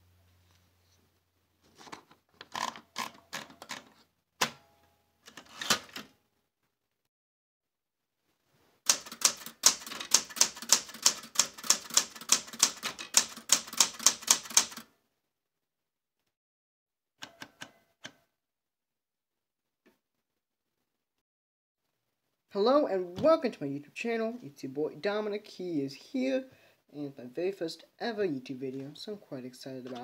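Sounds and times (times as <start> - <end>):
typewriter clack: 8.9 - 14.8
manual typewriter typing: 8.9 - 14.9
typewriter clicks: 8.9 - 14.9.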